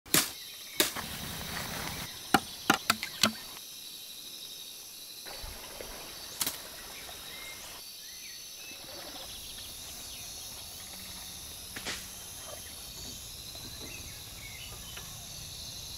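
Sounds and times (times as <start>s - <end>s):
machete chopping bamboo: 0.1s - 1.1s, 2.3s - 3.5s
forest insects droning: 0.3s - 15.9s.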